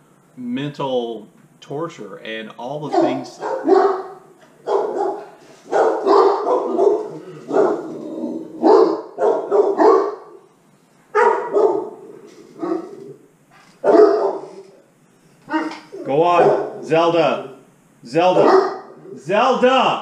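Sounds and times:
dogs barking: 2.8s - 10.5s, 11.1s - 13.2s, 13.8s - 14.7s, 15.5s - 17.0s, 18.2s - 19.1s.

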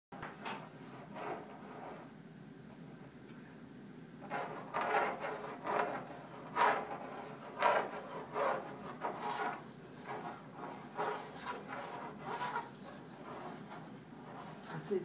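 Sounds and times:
squeeze bottle rubbing on canvas: 4.2s - 15.0s.

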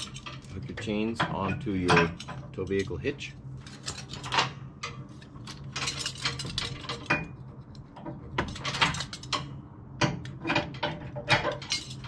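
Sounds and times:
metal chains clinking and rattling: 0.0s - 3.0s, 3.6s - 7.3s, 8.4s - 9.5s, 10.5s - 12.0s.

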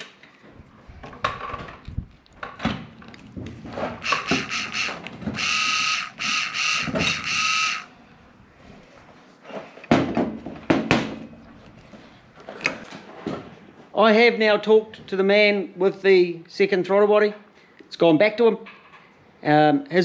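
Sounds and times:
small electric motor whining: 4.0s - 7.9s.

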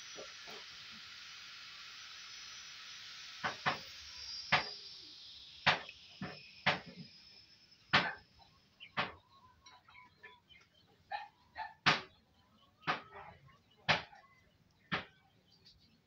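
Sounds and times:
steady hiss: 0.0s - 9.4s.

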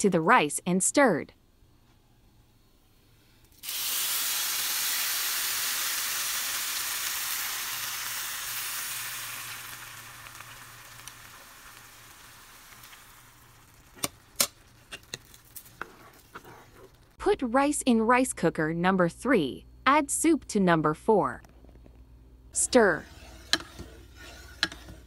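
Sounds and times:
rice sizzling in oil: 3.6s - 16.4s.

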